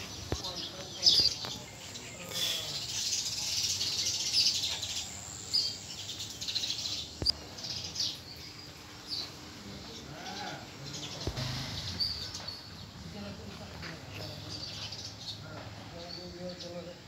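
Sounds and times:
insects hissing: 0.0 - 7.3, 9.1 - 13.0
small birds chirping: 0.0 - 17.0.

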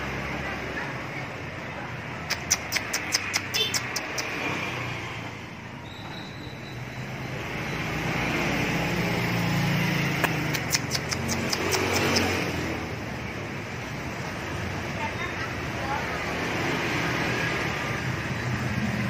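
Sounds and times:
motor vehicle passing: 0.0 - 19.0
sharp ticks: 2.2 - 4.6, 10.1 - 12.8.

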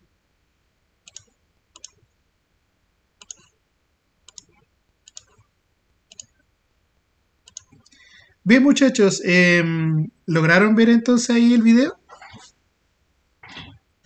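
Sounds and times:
computer mouse clicking: 1.0 - 2.1, 3.2 - 3.6, 4.2 - 5.5, 6.1 - 6.5, 7.4 - 8.0.

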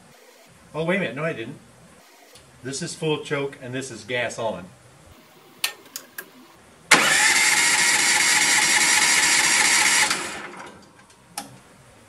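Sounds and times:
engine spinning down: 6.9 - 10.8
electric starter cranking engine: 6.9 - 10.9.

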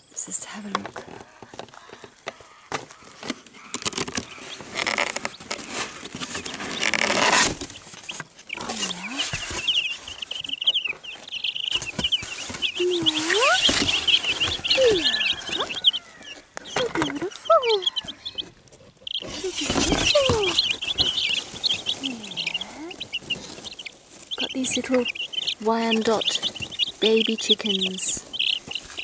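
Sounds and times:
chicks peeping: 0.0 - 29.0
cardboard box rustling: 2.7 - 29.0
lower sliding calls: 8.5 - 29.0.

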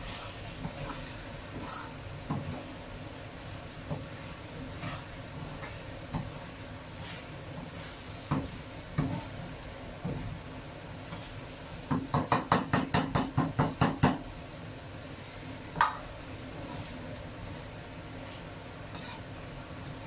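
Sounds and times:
steady hiss: 0.0 - 20.0
spatula knocking against a wok: 11.9 - 14.3, 15.8 - 16.0.

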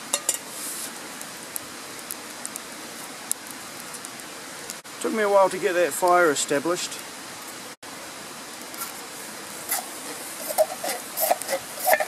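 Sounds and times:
steady low hiss: 0.0 - 12.0
utensil scraping pan: 9.6 - 12.0.

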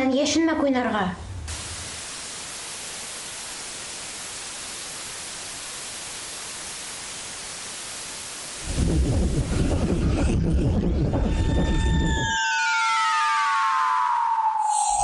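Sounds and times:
television static hiss: 0.0 - 10.4.

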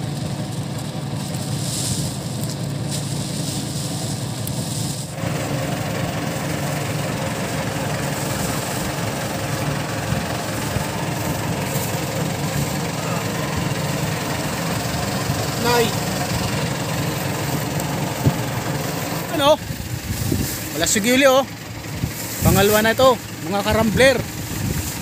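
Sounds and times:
boat engine idling: 0.0 - 25.0.

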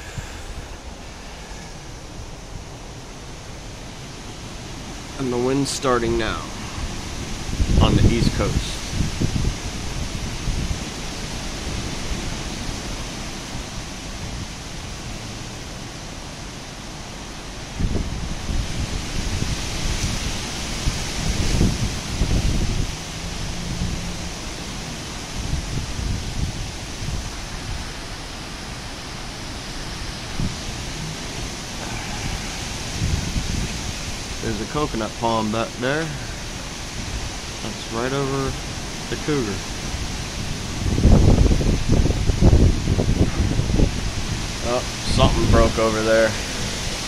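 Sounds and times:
wind buffeting microphone: 0.0 - 35.3, 35.9 - 47.0
wind rushing through trees: 0.0 - 47.0.

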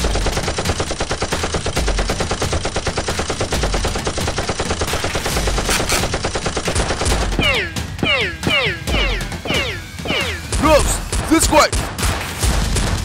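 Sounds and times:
automatic gunfire: 0.0 - 7.6.

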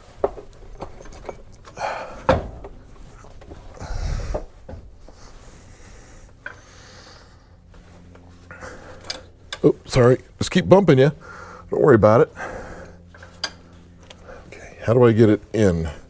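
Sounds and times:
metal knocks and clunks: 2.2 - 2.8.

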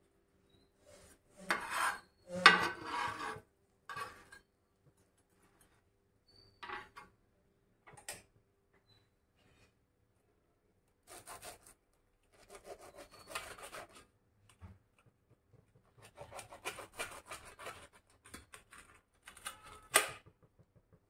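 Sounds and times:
metal spatula scraping griddle: 0.9 - 4.5.

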